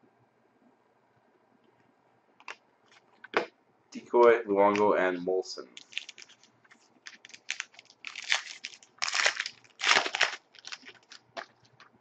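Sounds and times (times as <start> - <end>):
foil wrapper crinkling and tearing: 5.8 - 12.0.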